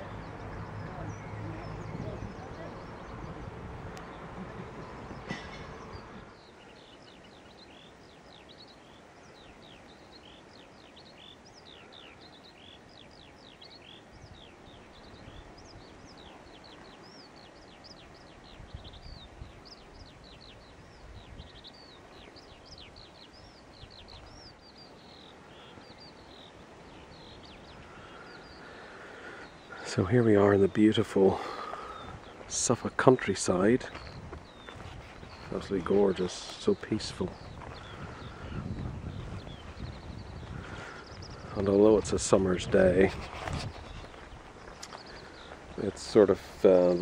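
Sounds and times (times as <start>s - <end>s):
wind rumble on microphone: 0.0s - 6.5s, 13.1s - 24.8s, 31.9s - 47.0s
birds chirping: 0.0s - 47.0s.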